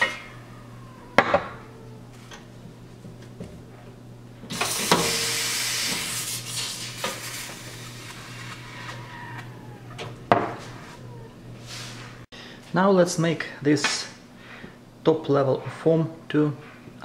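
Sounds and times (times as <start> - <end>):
steam wand hissing: 4.5 - 10.0.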